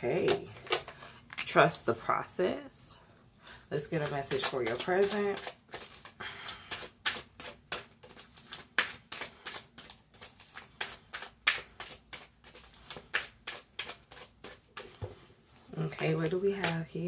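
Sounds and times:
cards being shuffled: 0.0s - 1.6s, 3.8s - 15.1s.

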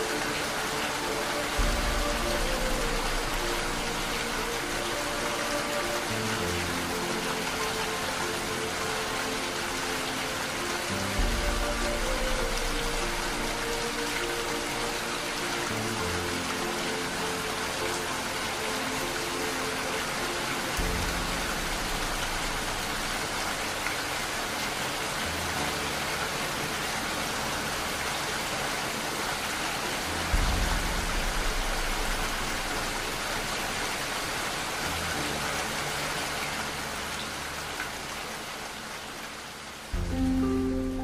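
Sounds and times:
steady rain: 0.0s - 41.0s
low deep rumble: 30.2s - 34.3s.

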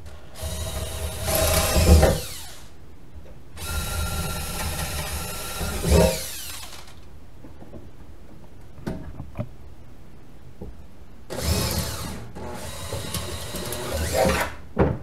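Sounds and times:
cordless drill boring into metal: 0.4s - 2.7s, 3.6s - 7.0s, 11.3s - 14.5s.

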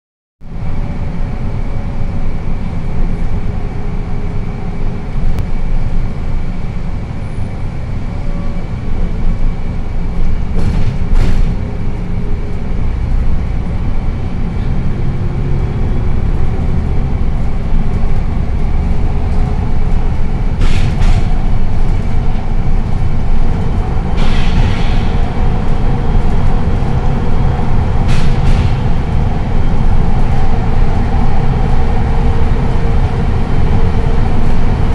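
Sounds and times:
bus engine and road rumble: 0.4s - 34.9s
sharp knocks: 10.6s - 11.8s, 20.6s - 22.0s, 28.0s - 29.2s.

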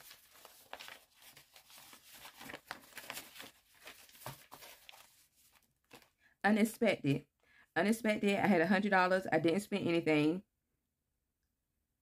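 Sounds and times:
paper page rustling: 0.0s - 6.2s.

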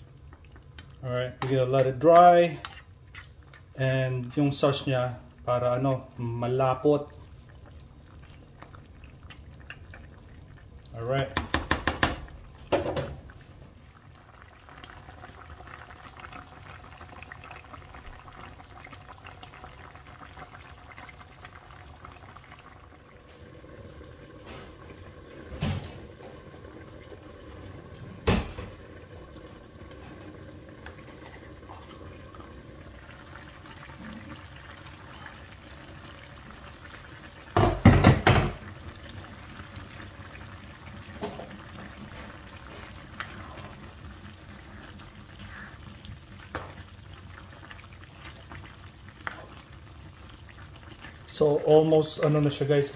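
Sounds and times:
sauce bubbling in a pot: 0.0s - 52.9s
sharp knocks: 11.4s - 12.2s.

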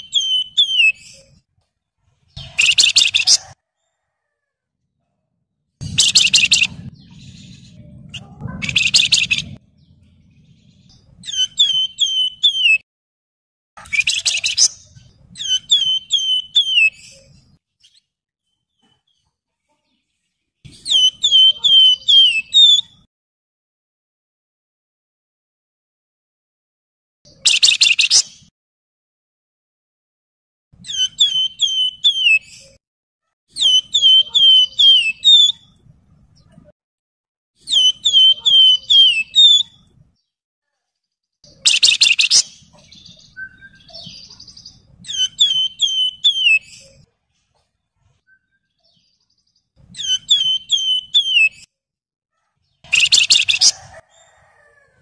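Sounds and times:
high whistled bird notes: 0.0s - 1.2s, 5.8s - 7.6s, 11.2s - 12.8s, 13.8s - 17.0s, 20.8s - 22.9s, 30.9s - 32.4s, 33.6s - 35.7s, 37.6s - 39.7s, 41.5s - 46.7s, 50.0s - 51.7s, 52.9s - 53.8s
bird chattering trills: 5.8s - 9.6s, 52.8s - 53.8s.

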